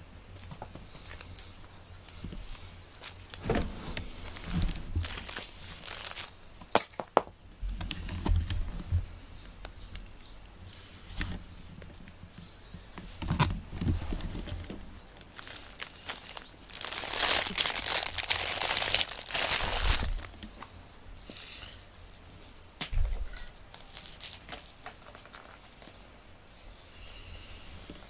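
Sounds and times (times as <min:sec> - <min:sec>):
light metallic jingling: 0:00.4 - 0:07.2, 0:21.2 - 0:27.0
handling clicks and knocks: 0:00.4 - 0:08.6, 0:21.2 - 0:26.1
low thumps: 0:03.4 - 0:05.3.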